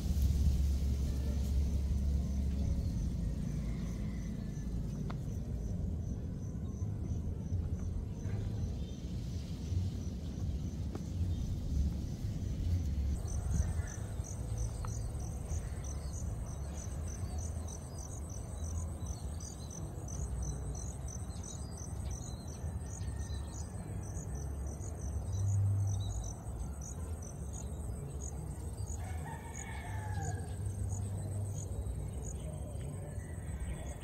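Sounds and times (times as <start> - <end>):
low rumble: 0.0 - 18.9
high pulsing insect chirp: 0.0 - 34.0
insects trilling: 0.0 - 34.0.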